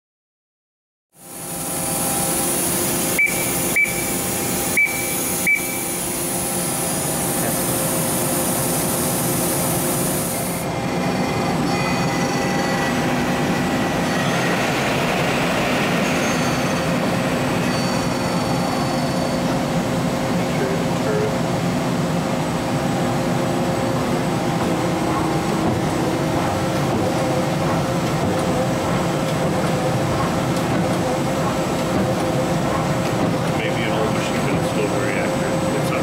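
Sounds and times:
lathe mechanical hum: 1.2s - 36.0s
spindle whirring: 1.4s - 15.2s.

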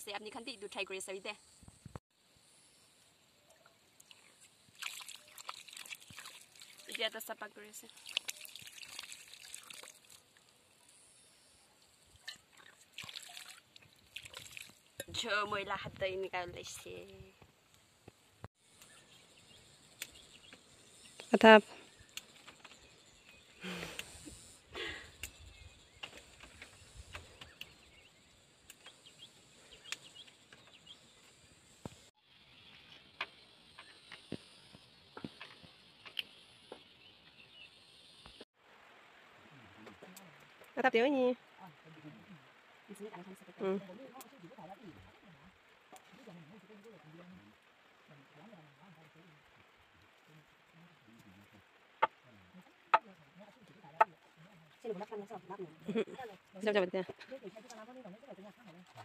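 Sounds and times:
faint insect hum: 0.0s - 59.0s
water trickling and dripping: 3.4s - 11.0s, 11.8s - 17.4s
mug dipping splashes: 4.0s - 10.3s, 12.2s - 15.2s.

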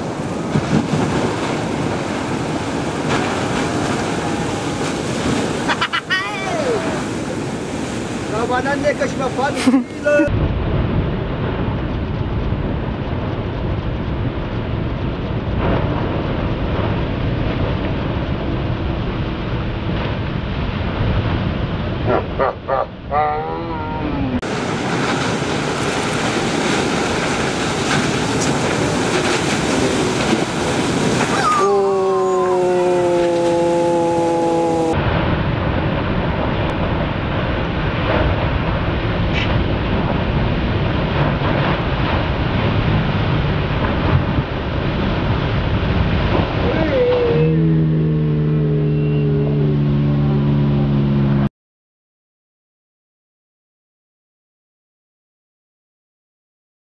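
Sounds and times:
wind on microphone: 0.0s - 51.3s
ocean waves breaking: 0.0s - 51.4s
person shouting: 6.0s - 7.1s, 10.0s - 10.3s, 23.1s - 24.4s, 31.3s - 35.0s, 46.6s - 47.6s.

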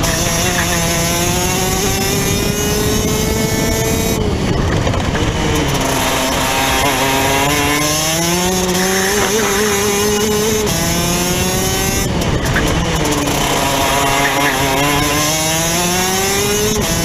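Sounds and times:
kart engine revving: 0.0s - 17.0s.

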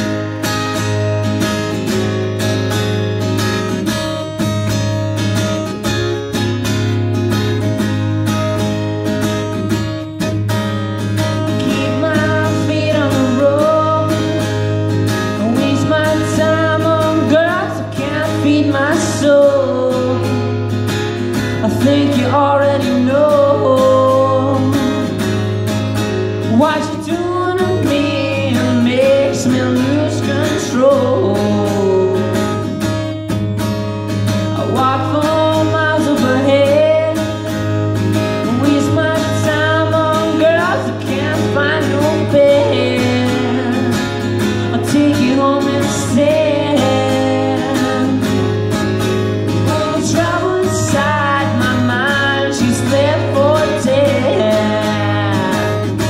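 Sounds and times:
acoustic guitar strumming: 0.0s - 56.0s
man singing bluesy song: 11.4s - 14.4s, 15.2s - 20.5s, 21.6s - 25.2s, 26.5s - 32.7s, 34.6s - 37.5s, 38.4s - 48.6s, 49.6s - 56.0s.

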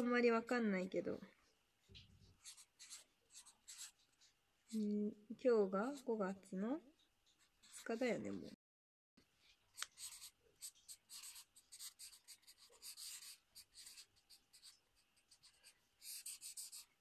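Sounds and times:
pen scratching on paper: 2.4s - 4.8s, 7.4s - 8.2s, 9.7s - 17.0s.

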